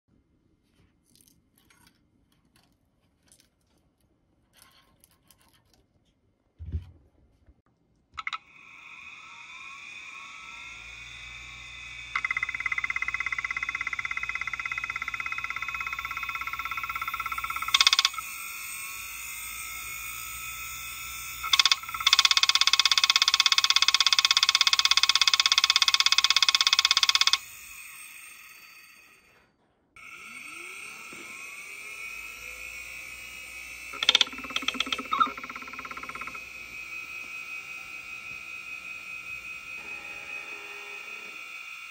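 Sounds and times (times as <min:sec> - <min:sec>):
head actuator buzzing: 0:08.2 - 0:29.1, 0:30.0 - 0:41.9
hard drive platter whine: 0:08.2 - 0:29.3, 0:30.0 - 0:41.9.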